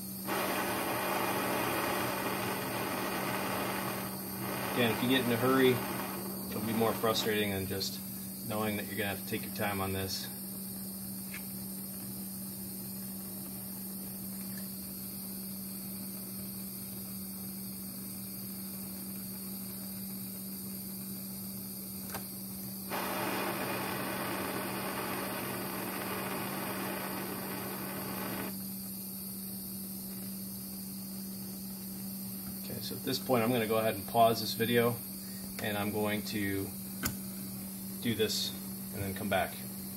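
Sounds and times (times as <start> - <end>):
steady hum: 0.0 - 10.4, 22.8 - 28.6
torch hissing: 0.2 - 8.2, 22.9 - 28.6.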